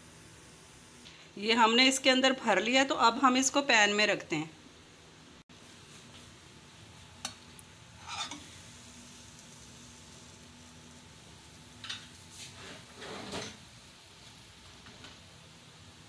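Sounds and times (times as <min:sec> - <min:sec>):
spoon knocking and scraping pan: 0:08.0 - 0:08.5.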